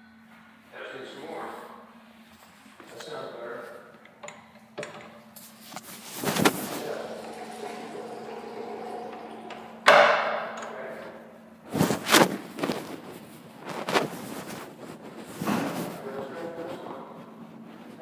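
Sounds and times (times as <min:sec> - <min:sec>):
steady low hum: 0:00.0 - 0:18.0
loud ringing bang: 0:09.8 - 0:10.5.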